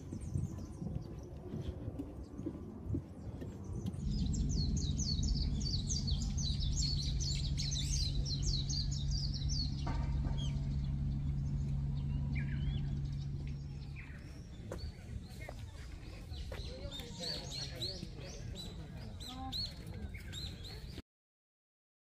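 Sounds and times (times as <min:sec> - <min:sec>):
steady low hum: 0:00.0 - 0:19.2
low rumble: 0:00.0 - 0:20.5
songbird singing high notes: 0:04.0 - 0:09.8.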